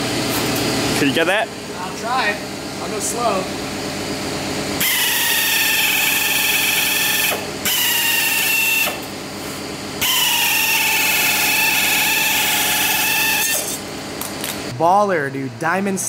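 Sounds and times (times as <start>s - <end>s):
metal shear whining: 10.0s - 14.6s.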